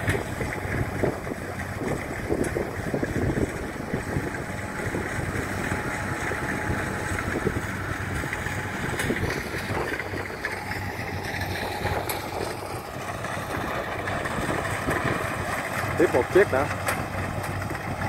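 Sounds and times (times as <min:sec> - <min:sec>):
combine harvester drone: 0:00.0 - 0:18.0.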